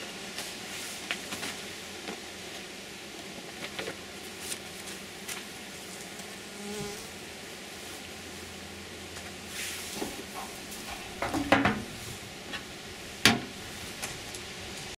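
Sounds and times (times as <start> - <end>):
honeybees buzzing: 0.6 - 9.4.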